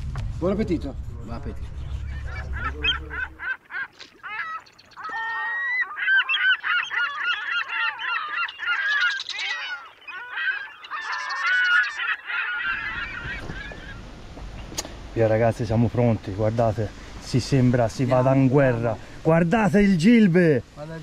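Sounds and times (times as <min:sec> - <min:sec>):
flock of birds calling: 0:01.7 - 0:14.8.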